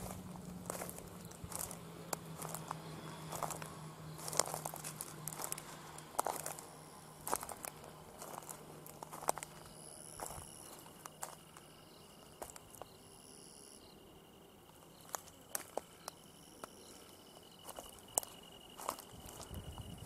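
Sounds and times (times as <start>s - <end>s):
footsteps crunching on wood chips: 0.0s - 11.7s, 12.4s - 13.0s, 17.6s - 19.7s
high-pitched insect drone: 0.0s - 20.0s.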